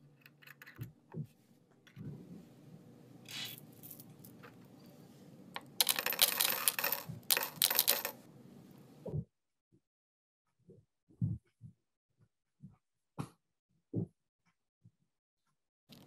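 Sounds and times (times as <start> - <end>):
candies rattling into glass bottle: 5.8 - 8.2.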